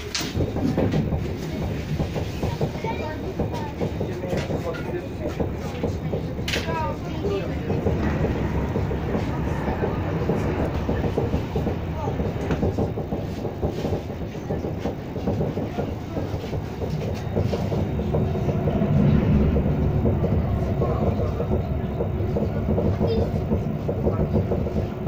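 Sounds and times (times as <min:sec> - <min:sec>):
train wheels rumbling on rails: 0:00.0 - 0:25.0.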